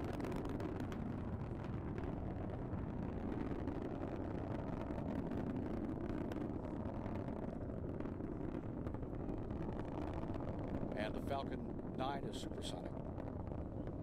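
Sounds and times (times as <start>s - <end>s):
rocket engine rumble: 0.0s - 14.0s.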